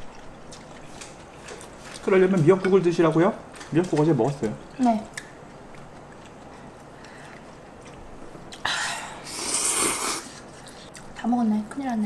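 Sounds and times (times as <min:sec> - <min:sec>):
person slurping noodles: 0:09.2 - 0:10.5.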